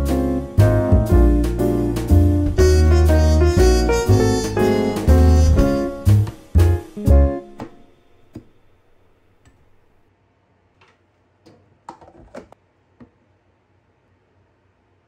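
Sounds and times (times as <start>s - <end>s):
background music: 0.0s - 8.3s.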